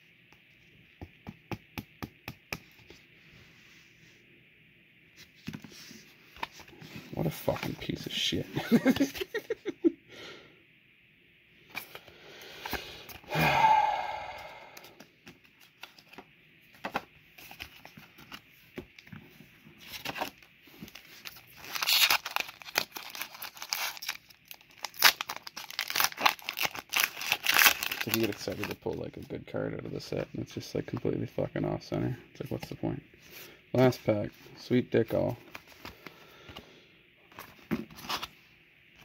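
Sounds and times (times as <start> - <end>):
foil wrapper crinkling and tearing: 19.9 - 29.0.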